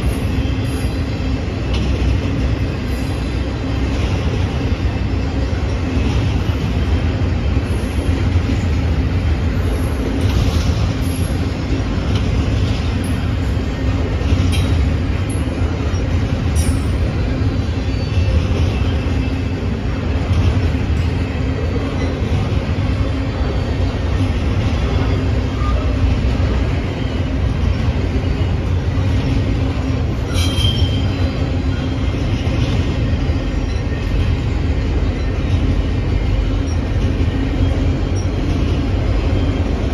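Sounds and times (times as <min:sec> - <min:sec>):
train knocks: 0:00.0 - 0:39.9
train wheels rumbling on rails: 0:00.0 - 0:39.9
wheel squeals: 0:30.2 - 0:34.4.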